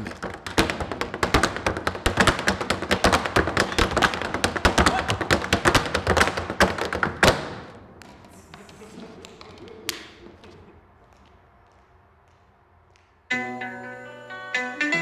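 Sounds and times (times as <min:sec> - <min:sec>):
heel thuds: 0:00.0 - 0:08.6
tap shoes on wooden board: 0:00.0 - 0:13.1.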